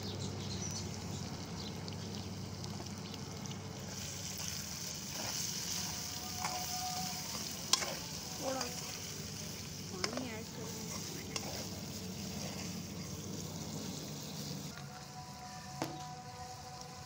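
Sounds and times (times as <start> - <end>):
potatoes sizzling in a pan: 0.2 - 17.0
spoon scraping pan: 5.0 - 9.0, 10.0 - 14.4.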